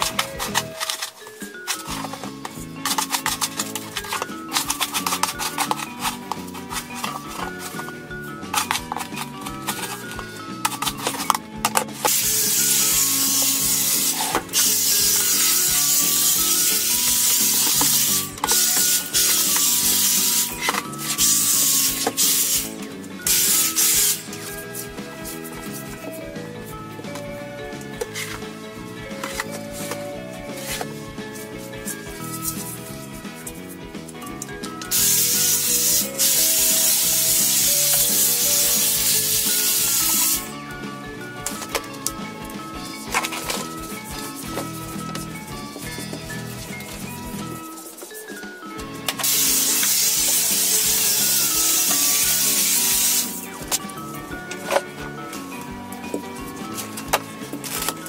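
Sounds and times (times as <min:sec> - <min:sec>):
stick vacuum cleaner hissing: 0:00.0 - 0:27.3, 0:34.9 - 0:40.6, 0:49.1 - 0:53.5.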